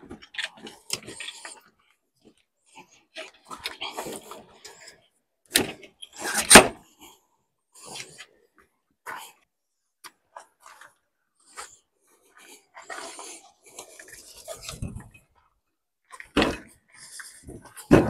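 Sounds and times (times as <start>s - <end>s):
camping gear rustling and scraping: 10.2s - 15.4s.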